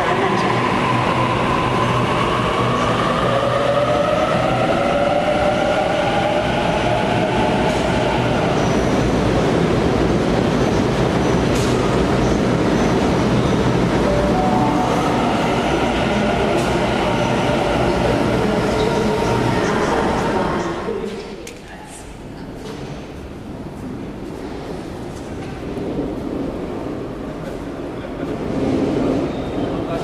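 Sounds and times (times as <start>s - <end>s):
train rumbling: 0.0s - 21.4s, 22.1s - 30.0s.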